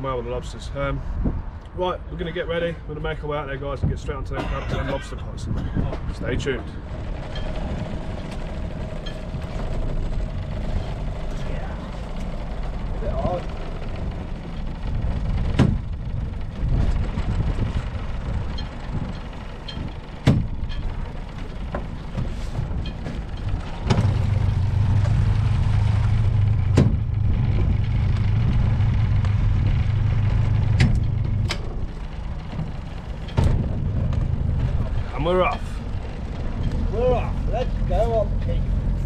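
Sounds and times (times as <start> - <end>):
outboard motor running: 4.4 - 39.0
sharp knocks in boat: 13.2 - 25.2, 26.6 - 27.7, 30.2 - 34.9.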